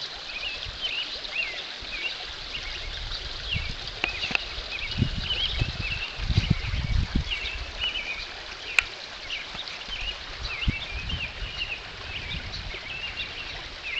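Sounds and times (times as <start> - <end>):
small birds chirping: 0.3 - 13.9
low rumbling on microphone: 2.5 - 8.4, 10.0 - 13.9.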